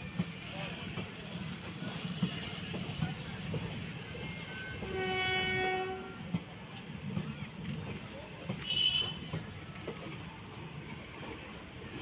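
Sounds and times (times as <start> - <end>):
train coaches rumbling past: 0.0 - 12.0
train horn: 4.2 - 6.4, 8.6 - 9.3.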